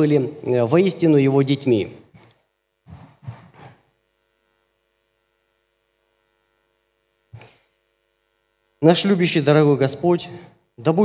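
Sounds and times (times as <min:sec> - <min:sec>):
faint mains hum: 0:00.0 - 0:11.0
soft noises at microphone: 0:02.0 - 0:04.0.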